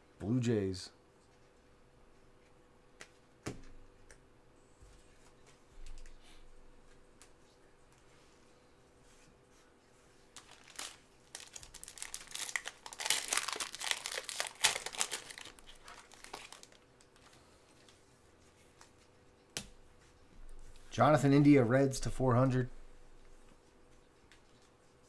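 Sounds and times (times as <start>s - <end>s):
foil wrapper crinkling: 10.4s - 17.3s.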